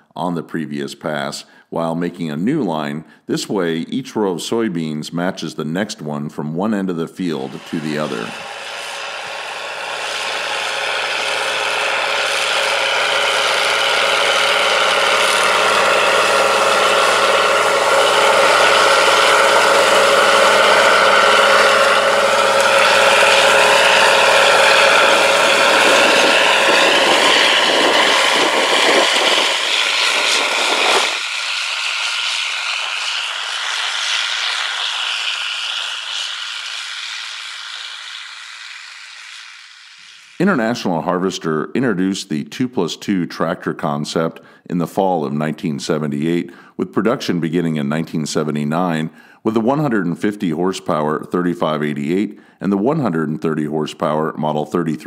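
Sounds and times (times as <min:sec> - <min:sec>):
tractor diesel engine under load: 0:06.7 - 0:41.3
planter mechanisms clattering: 0:07.5 - 0:31.2.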